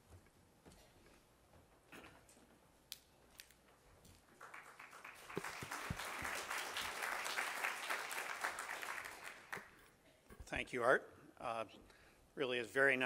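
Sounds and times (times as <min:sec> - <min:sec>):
audience applauding: 0:04.4 - 0:09.8.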